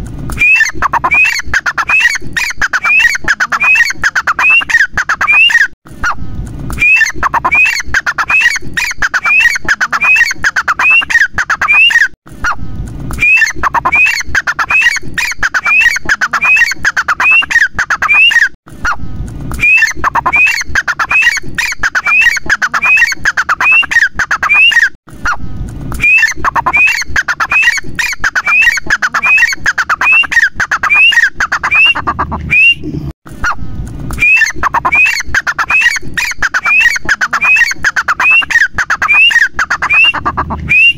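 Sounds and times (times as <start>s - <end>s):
francolin calling shrilly: 0.4s - 5.7s, 6.8s - 12.1s, 19.6s - 25.0s, 26.0s - 32.8s, 34.2s - 40.9s.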